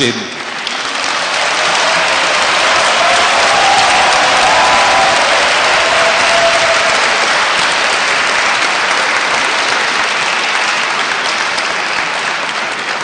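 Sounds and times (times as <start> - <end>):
large audience applauding: 0.4 - 13.0.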